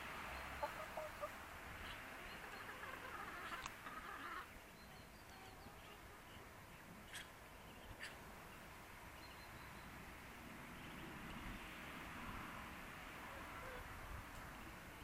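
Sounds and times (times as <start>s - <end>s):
faint poultry calls: 0.6s - 6.4s, 13.3s - 13.9s.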